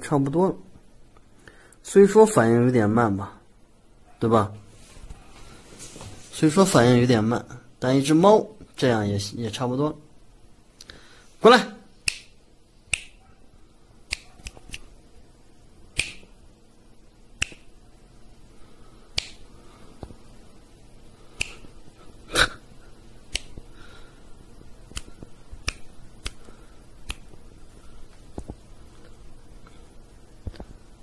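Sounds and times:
finger snaps: 12.0 - 13.3, 14.1 - 14.9, 16.0 - 16.4, 17.4 - 17.8, 19.1 - 20.2, 21.3 - 21.8, 23.3 - 23.7, 24.9 - 27.5.

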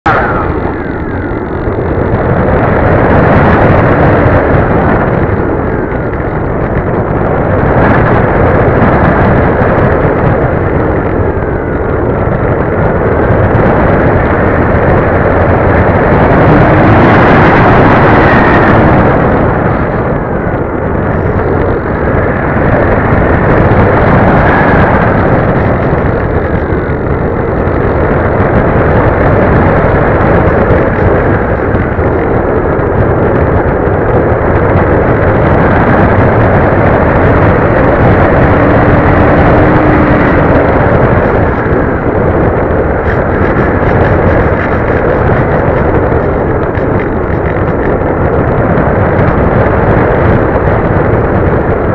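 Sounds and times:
faint whine gliding in pitch: 0.0 - 51.9
wind rush: 0.0 - 51.9.

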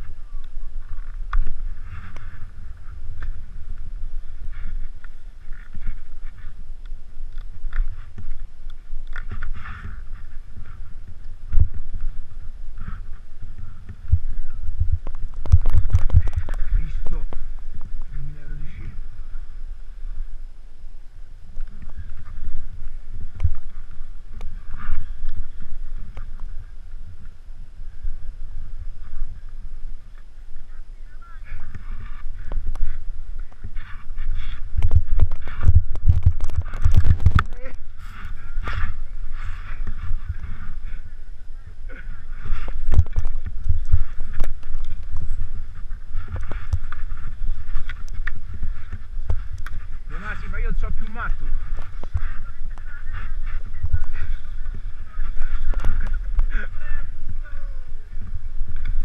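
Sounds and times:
skis through soft snow: 0.0 - 59.0
wind buffeting microphone: 0.0 - 59.0.

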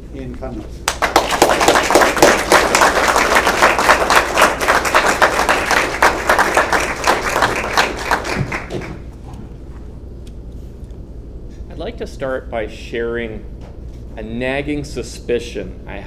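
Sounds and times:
audience applauding: 0.8 - 9.1.

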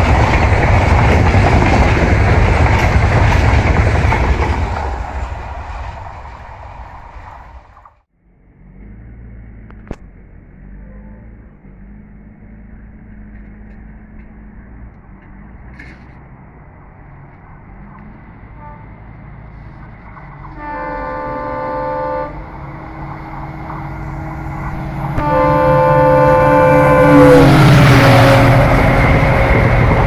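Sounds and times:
locomotive engine rumble: 0.0 - 30.0
locomotive horn: 18.5 - 19.1, 20.4 - 29.6.

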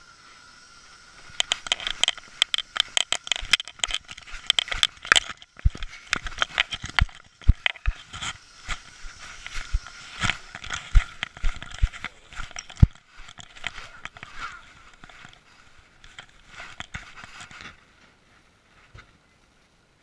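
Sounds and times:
camera rattling and knocking: 1.3 - 17.7.

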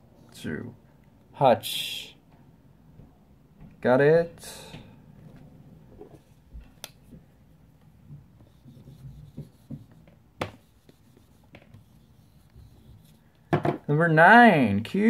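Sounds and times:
eraser rubbing whiteboard: 8.4 - 13.2.

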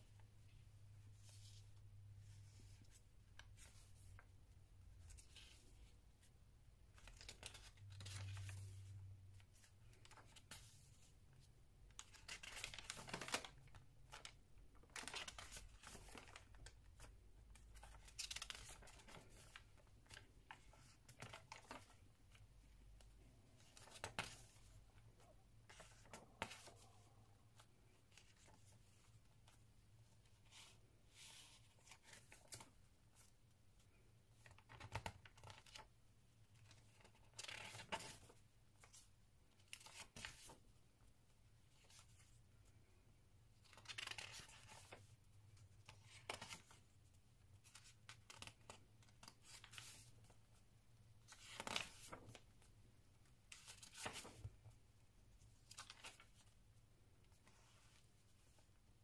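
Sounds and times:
paper pages rustling: 6.9 - 11.0, 11.9 - 22.1, 23.6 - 29.6, 36.6 - 40.6, 43.6 - 45.1, 45.8 - 46.9, 47.6 - 50.1, 51.3 - 52.6, 53.5 - 54.6, 55.4 - 56.6.

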